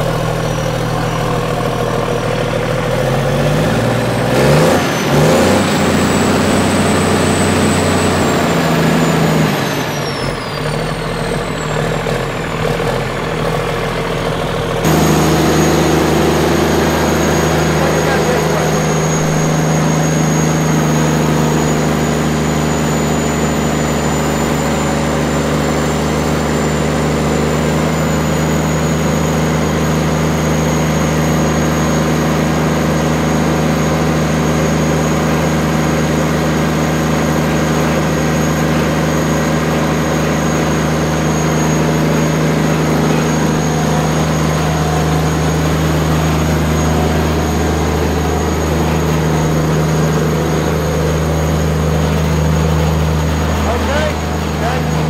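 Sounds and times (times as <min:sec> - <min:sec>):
diesel engine running: 0:00.0 - 0:55.0
thin high whine: 0:14.9 - 0:32.3, 0:37.1 - 0:55.0.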